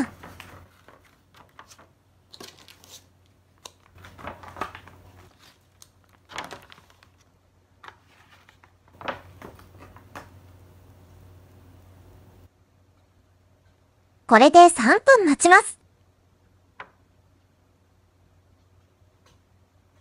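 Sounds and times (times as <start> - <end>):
plastic sachet rustling: 0.2 - 7.3.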